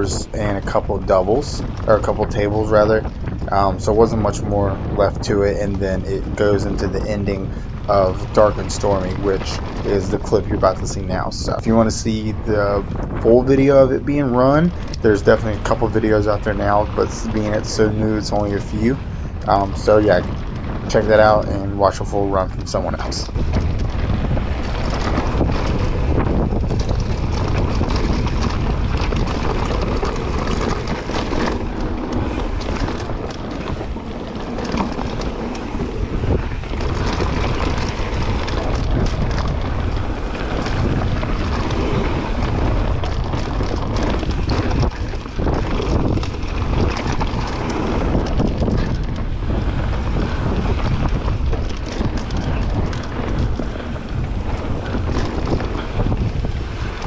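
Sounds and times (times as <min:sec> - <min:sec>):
bike clattering over bumps: 0:00.0 - 0:57.0
wind on microphone: 0:00.0 - 0:57.0
tyres on dirt: 0:13.0 - 0:57.0.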